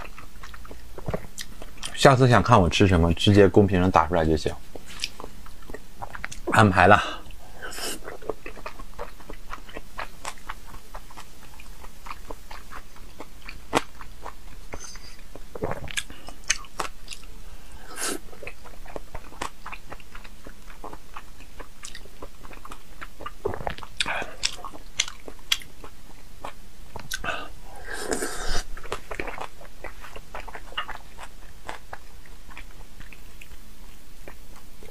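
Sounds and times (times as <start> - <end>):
chewing raw fish: 8.0 - 34.9.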